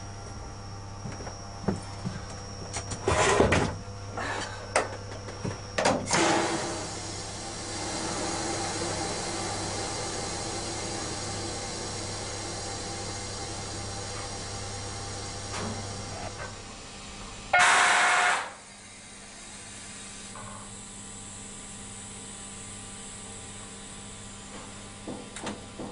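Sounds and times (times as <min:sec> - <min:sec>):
compressed air blast: 0:17.6 - 0:18.6.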